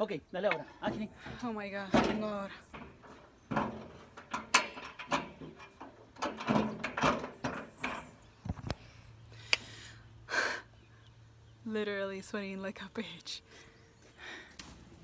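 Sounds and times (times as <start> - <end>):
metal shutter knocks and clatters: 1.8 - 8.2.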